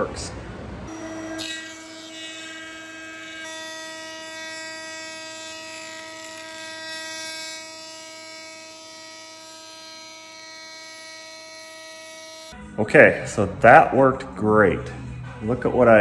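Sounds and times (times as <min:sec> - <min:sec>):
thickness planer motor whine: 0:00.9 - 0:12.6.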